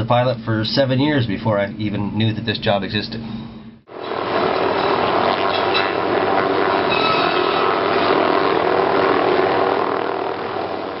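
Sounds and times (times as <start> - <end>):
helicopter turbine and rotor: 3.6 - 11.0
circular saw blades spinning: 3.9 - 11.0.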